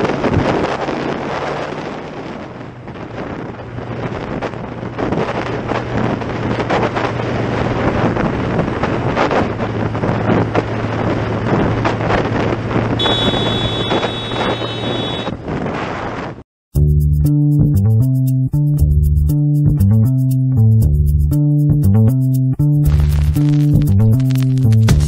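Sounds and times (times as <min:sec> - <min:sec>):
motorcycle engine hum: 0:00.0 - 0:16.4
wind buffeting microphone: 0:00.0 - 0:16.4
high steady tone: 0:13.0 - 0:15.3.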